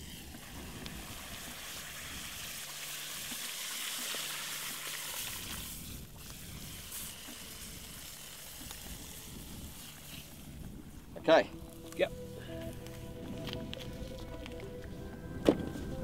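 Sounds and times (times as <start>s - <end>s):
liquid nitrogen trickling and hissing: 0.0s - 12.7s.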